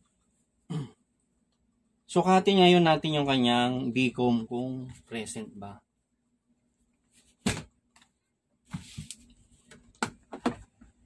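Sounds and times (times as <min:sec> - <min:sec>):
objects knocking on workbench: 0:07.4 - 0:07.7, 0:10.0 - 0:10.7.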